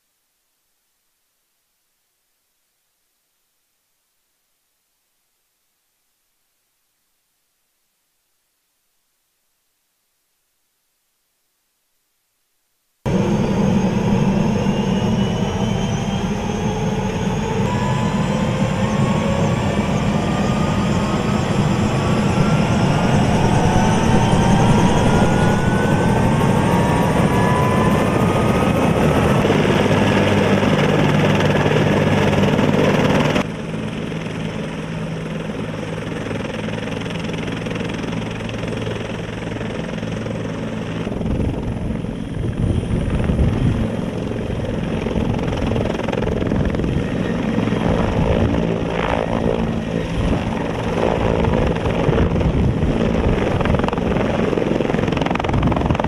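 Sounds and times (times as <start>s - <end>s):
helicopter engine whine: 13.1s - 56.0s
helicopter rotor noise: 13.1s - 56.0s.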